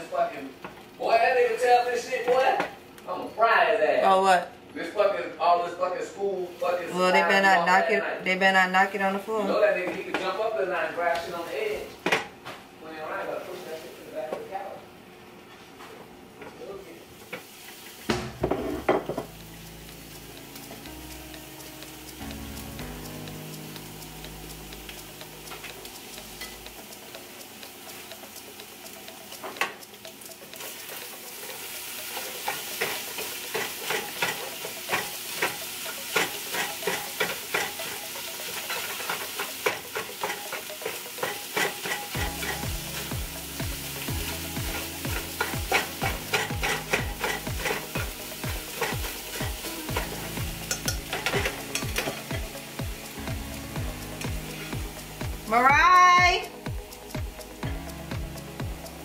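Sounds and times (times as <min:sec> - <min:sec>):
eggs sizzling: 0:00.0 - 0:04.5, 0:06.2 - 0:12.4, 0:17.1 - 0:59.0
whisk scraping a pan: 0:44.7 - 0:52.4.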